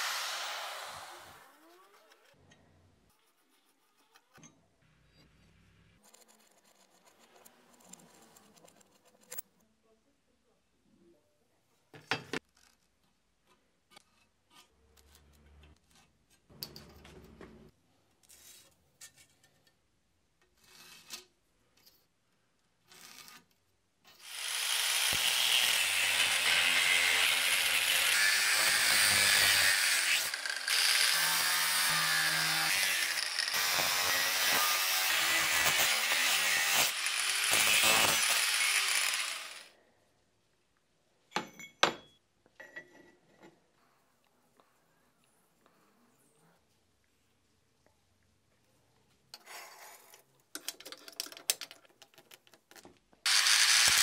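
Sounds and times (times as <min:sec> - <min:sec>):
power tool working metal: 0:00.0 - 0:01.5, 0:24.2 - 0:39.7, 0:53.3 - 0:54.0
tools clicking and knocking: 0:50.5 - 0:53.2.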